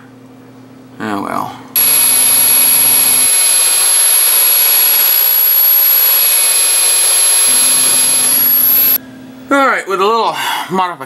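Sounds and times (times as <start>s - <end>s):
rotary tool grinding metal: 1.8s - 9.0s.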